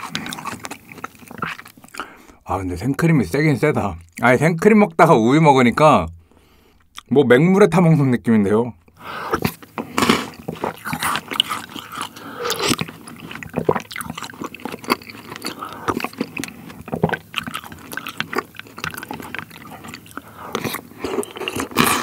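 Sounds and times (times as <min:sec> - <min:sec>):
wet mouth sounds: 0:00.0 - 0:02.2, 0:08.8 - 0:22.0
chewing chocolate balls: 0:00.0 - 0:02.4, 0:03.6 - 0:05.1, 0:08.8 - 0:22.0.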